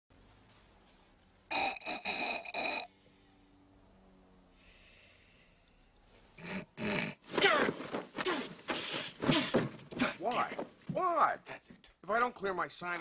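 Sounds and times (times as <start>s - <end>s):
man snorting and hawking: 6.4s - 9.8s.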